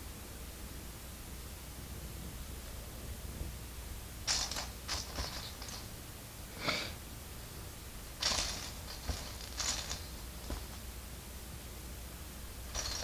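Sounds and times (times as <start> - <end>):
plastic pieces clicking and rattling: 4.3 - 5.9, 8.2 - 10.8, 12.7 - 13.0.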